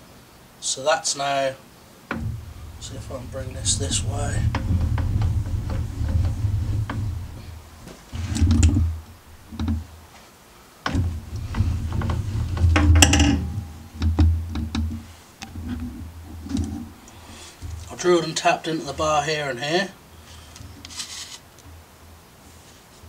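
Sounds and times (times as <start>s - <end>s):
light clicks and knocks: 2.1s - 9.9s, 10.8s - 18.0s
short rattle: 2.1s - 10.0s, 10.9s - 18.0s.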